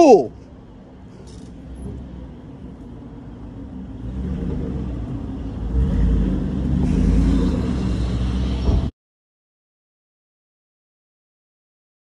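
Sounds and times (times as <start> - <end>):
pickup truck engine rumble: 0.3 - 8.9.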